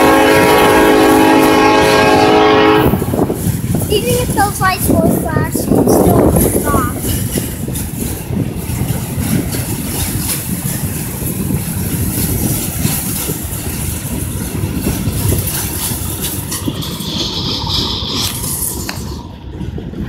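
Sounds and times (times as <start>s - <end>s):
freight train wheels rumbling on rails: 0.0s - 20.0s
wheels clicking and clattering: 3.1s - 20.0s.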